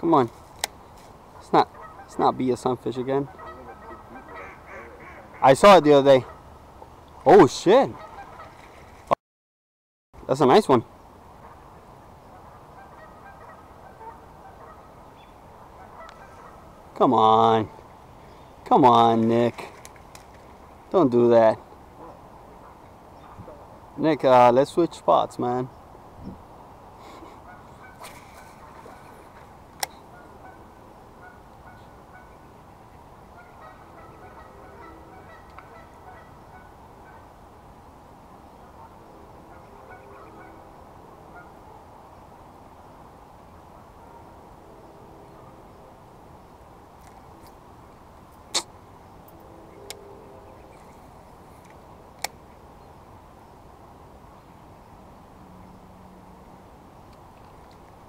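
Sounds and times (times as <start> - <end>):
faint outdoor hiss: 0.0 - 9.2, 10.2 - 58.0
geese honking: 1.4 - 2.4, 3.0 - 6.5, 7.9 - 8.7, 12.3 - 16.8, 27.4 - 29.4, 30.0 - 32.5, 33.3 - 37.3, 38.6 - 41.6.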